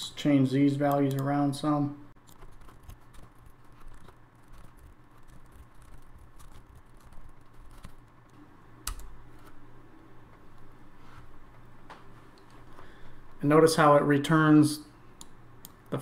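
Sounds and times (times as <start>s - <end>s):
computer keyboard typing: 0.8s - 1.3s, 2.2s - 8.2s, 8.9s - 9.1s.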